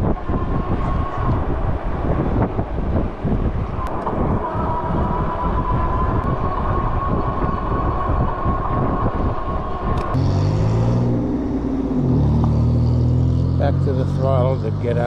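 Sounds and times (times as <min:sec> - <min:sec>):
wind buffeting microphone: 0:00.0 - 0:15.0
vehicle engine running: 0:10.2 - 0:15.0.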